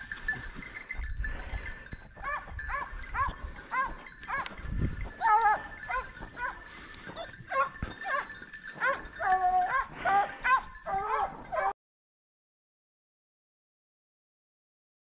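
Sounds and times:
hunting dogs yelping: 0:02.2 - 0:11.8.

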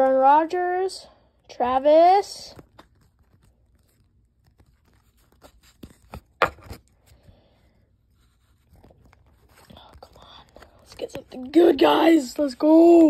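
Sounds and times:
cards sliding and clicking: 0:02.5 - 0:07.3.

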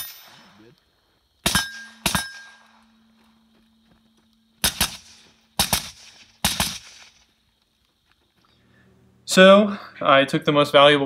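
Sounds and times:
rifle gunshots: 0:01.4 - 0:02.6, 0:04.6 - 0:07.2.

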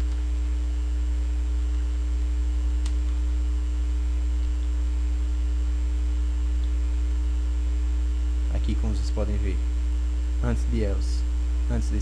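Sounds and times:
electrical mains hum: 0:00.0 - 0:12.0
faint click: 0:02.8 - 0:03.2, 0:06.6 - 0:06.8.

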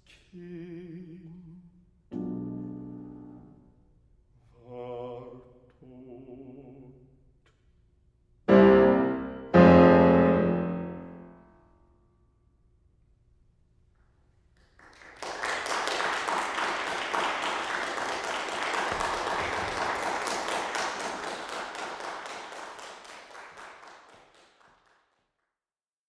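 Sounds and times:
audience applauding: 0:14.6 - 0:25.2.

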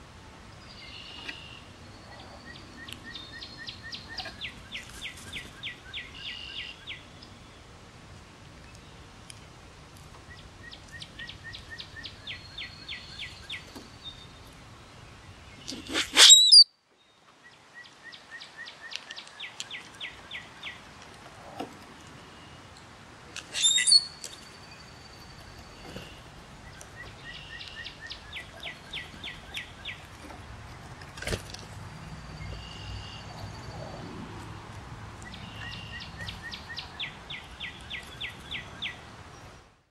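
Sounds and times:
songbird trilling: 0:15.8 - 0:16.7, 0:23.5 - 0:24.9, 0:26.0 - 0:30.0, 0:35.2 - 0:39.0.

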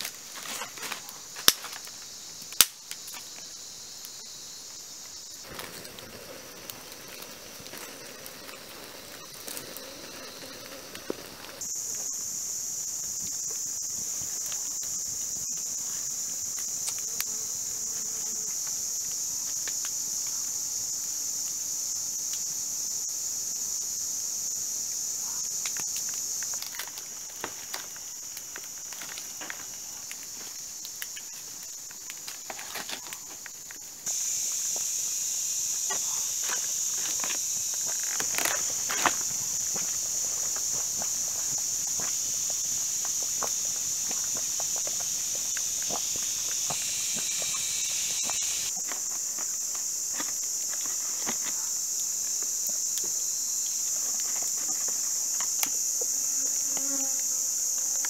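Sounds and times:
insects chorus: 0:00.0 - 0:58.0
small clicks and crackles: 0:25.6 - 0:33.9, 0:36.4 - 0:42.0.

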